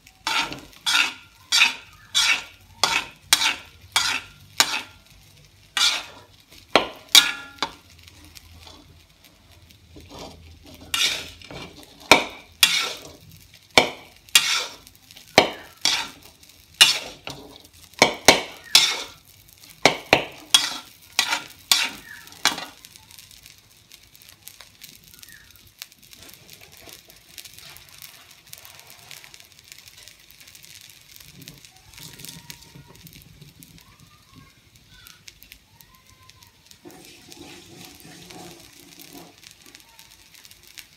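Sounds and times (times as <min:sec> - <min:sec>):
metal spatula scraping a wok: 0:00.0 - 0:09.0, 0:09.8 - 0:22.9, 0:26.1 - 0:30.1, 0:36.8 - 0:39.8
rice sizzling: 0:00.0 - 0:40.9.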